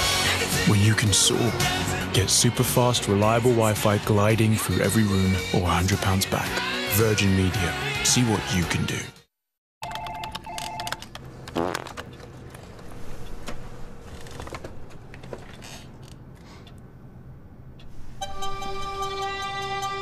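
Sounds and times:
music: 0:00.0 - 0:09.3, 0:18.2 - 0:20.0
small knocks and rustles: 0:11.9 - 0:16.2.

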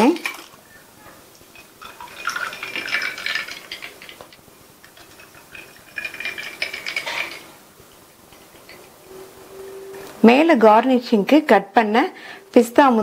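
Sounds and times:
ice clinking against glass: 0:01.5 - 0:04.2, 0:04.9 - 0:07.5
milk drink pouring over ice: 0:01.5 - 0:07.6.

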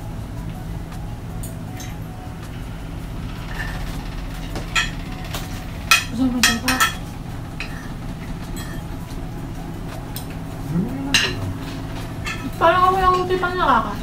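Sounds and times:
low hum: 0:00.0 - 0:14.0
cutlery clinking on plates: 0:04.8 - 0:08.0.

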